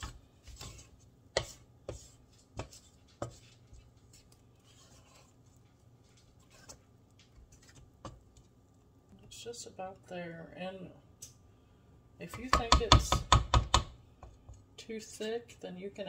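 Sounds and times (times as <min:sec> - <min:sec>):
spatula scraping mixing bowl: 0:00.0 - 0:08.3.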